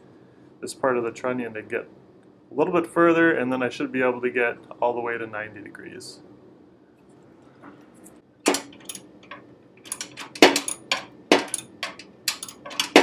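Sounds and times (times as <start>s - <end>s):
nut driver clinking on steel: 8.5s - 13.0s.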